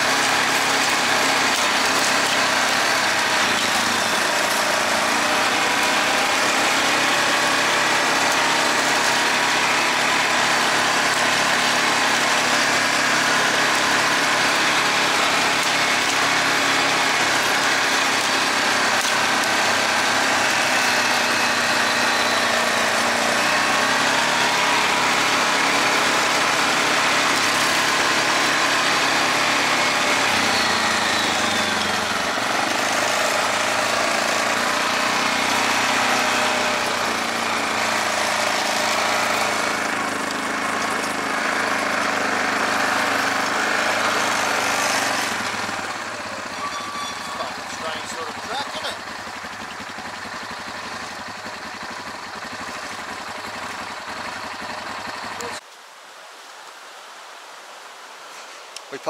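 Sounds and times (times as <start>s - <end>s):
quad engine running: 0.0s - 55.6s.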